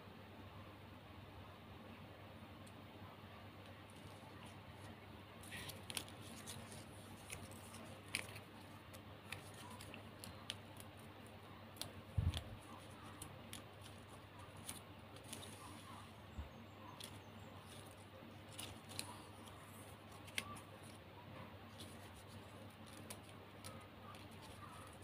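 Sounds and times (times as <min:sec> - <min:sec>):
plastic ribbon crackling: 0:03.9 - 0:16.0, 0:17.0 - 0:21.0, 0:21.7 - 0:25.0.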